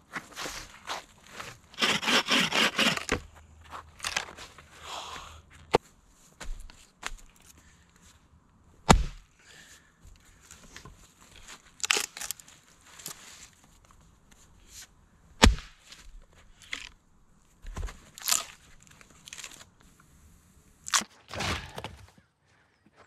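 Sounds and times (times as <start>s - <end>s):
axe splitting firewood: 1.4s - 3.3s, 8.8s - 9.2s, 15.4s - 15.8s, 20.9s - 22.2s
wood and dry leaves rustling: 10.2s - 14.4s, 17.6s - 19.8s.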